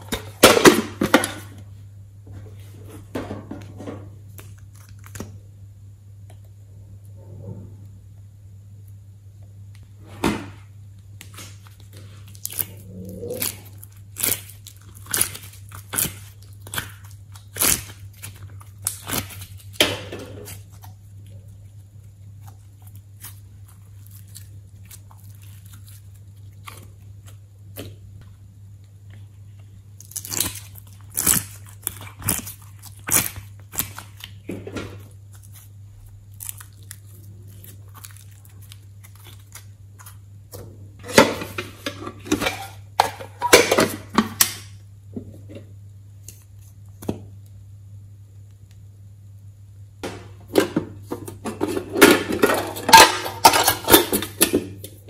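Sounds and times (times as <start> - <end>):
low hum: 0.0 - 42.3
slime popping and crackling: 11.2 - 19.8, 30.0 - 40.2.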